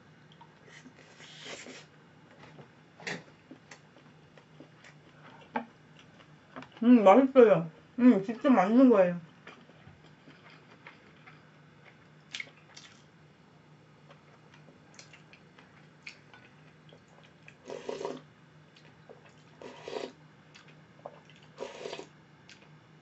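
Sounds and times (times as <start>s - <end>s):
faint steady hum: 0.0s - 23.0s
slurping broth from spoon: 17.6s - 18.2s, 19.6s - 20.2s, 21.6s - 22.1s.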